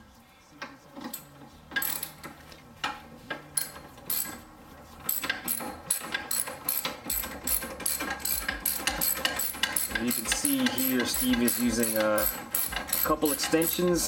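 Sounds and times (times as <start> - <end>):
ratchet wrench clicking: 1.8 - 2.2, 3.6 - 4.4, 5.1 - 14.0.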